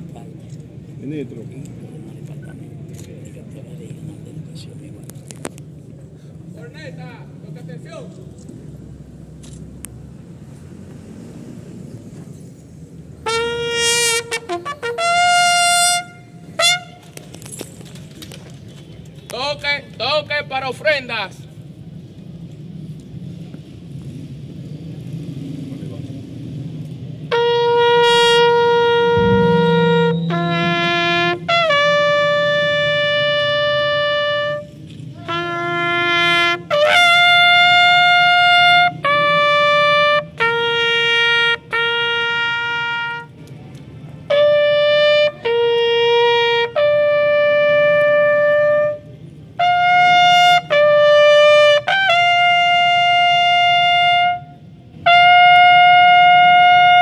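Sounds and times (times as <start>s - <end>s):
bugle playing long notes: 13.2s - 17.2s, 27.3s - 43.4s, 44.3s - 57.0s.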